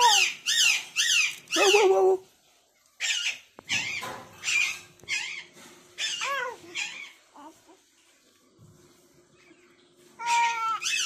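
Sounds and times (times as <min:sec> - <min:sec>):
baby squealing and babbling: 0:00.0 - 0:01.8, 0:06.0 - 0:07.7, 0:10.2 - 0:11.0.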